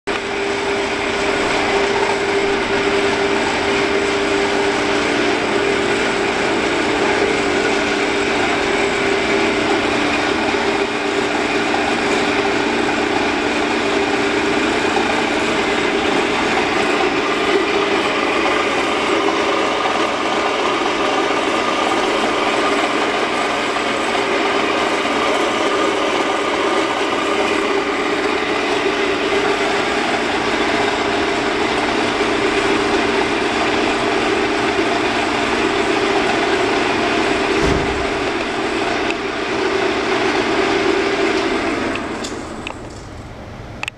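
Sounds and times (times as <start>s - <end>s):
band saw humming and whirring: 0.1s - 43.9s.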